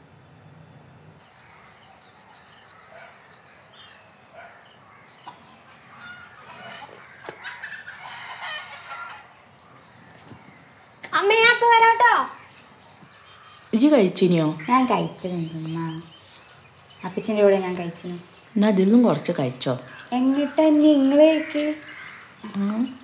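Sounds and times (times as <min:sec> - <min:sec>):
small bird chirps: 0:01.2 - 0:08.0
rooster crowing: 0:05.9 - 0:09.3.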